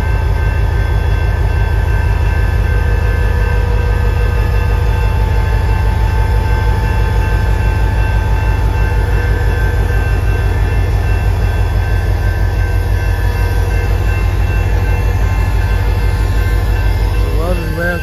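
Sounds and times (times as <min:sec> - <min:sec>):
diesel locomotive engine rumble: 0:00.0 - 0:18.0
steady high tones: 0:06.5 - 0:18.0.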